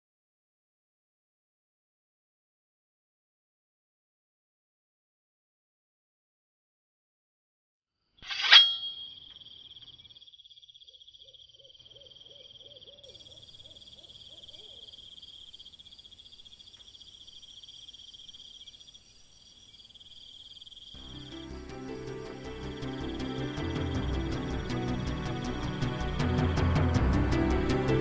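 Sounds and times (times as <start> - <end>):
crickets chirring: 8.3 - 28.0.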